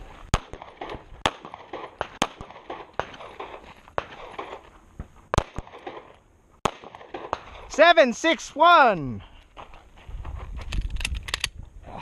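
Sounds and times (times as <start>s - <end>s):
pistol shots: 0.3s - 4.6s, 5.3s - 7.7s.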